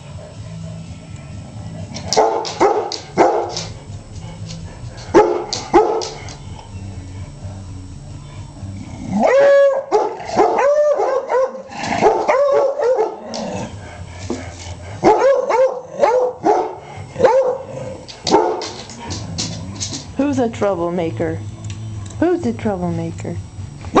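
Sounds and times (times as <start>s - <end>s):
dogs howling: 0.0s - 7.6s, 8.3s - 19.7s
dogs barking: 1.9s - 6.5s, 9.2s - 20.0s.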